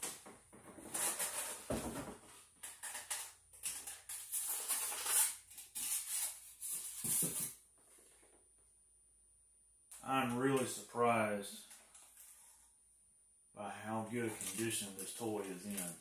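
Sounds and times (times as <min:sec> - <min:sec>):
cardboard and foam rustling: 0:05.8 - 0:08.2.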